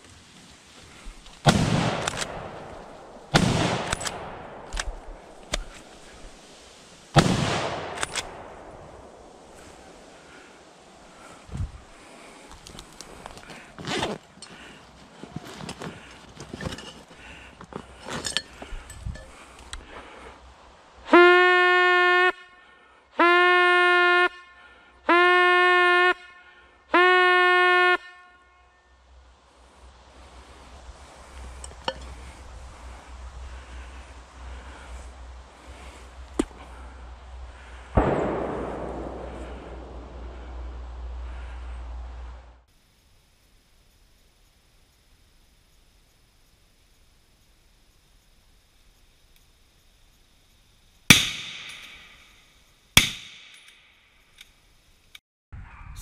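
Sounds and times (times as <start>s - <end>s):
rifle shots echoing: 1.5s - 5.4s, 7.2s - 9.2s, 38.0s - 40.4s, 51.1s - 52.3s
hunting horn long notes: 21.1s - 29.0s.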